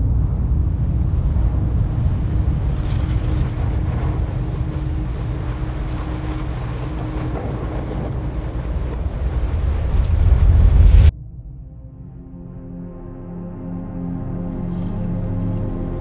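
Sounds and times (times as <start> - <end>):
faint steady hum: 0.0 - 11.1
wind buffeting microphone: 0.0 - 11.1.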